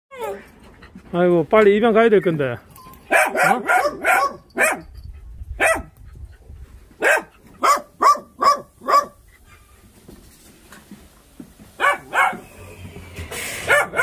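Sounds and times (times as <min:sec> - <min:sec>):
dog barking: 0:03.1 - 0:04.9, 0:05.6 - 0:05.9, 0:07.0 - 0:09.2, 0:11.8 - 0:12.5, 0:13.6 - 0:14.0.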